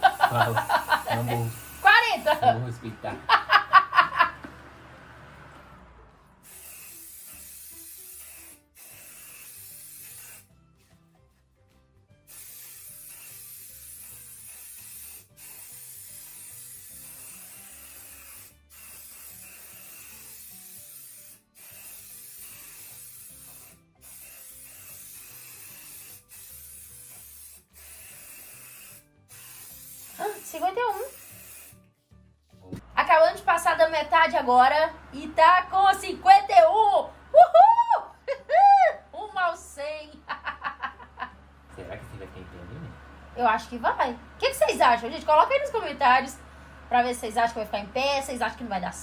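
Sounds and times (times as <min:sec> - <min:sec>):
aerosol hairspray spraying: 0:00.0 - 0:02.6, 0:06.4 - 0:10.9, 0:12.3 - 0:31.8.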